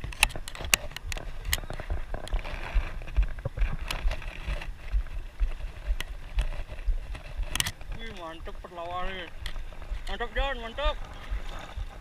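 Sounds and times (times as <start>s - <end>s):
sharp clicks: 0.0s - 2.4s, 7.1s - 8.2s
wind gusting on microphone: 0.0s - 12.0s.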